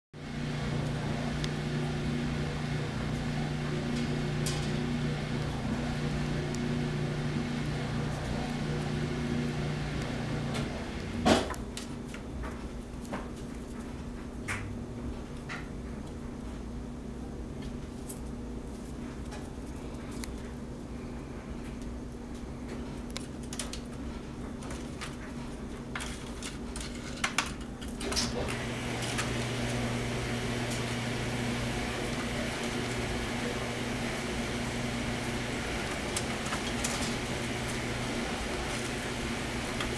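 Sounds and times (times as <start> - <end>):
machine hum: 0.2 - 11.8, 28.0 - 39.9.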